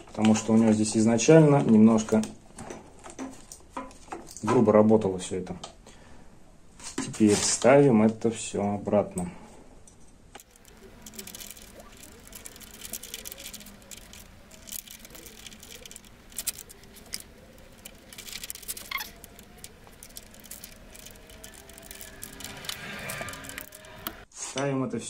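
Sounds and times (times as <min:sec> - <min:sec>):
small parts clicking and rattling: 0:00.0 - 0:04.6, 0:09.8 - 0:24.3.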